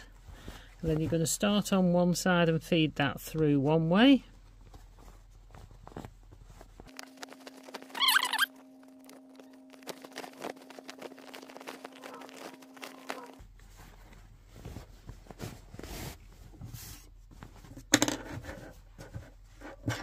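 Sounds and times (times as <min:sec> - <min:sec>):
fabric rustling and scrunching: 0:04.0 - 0:17.8.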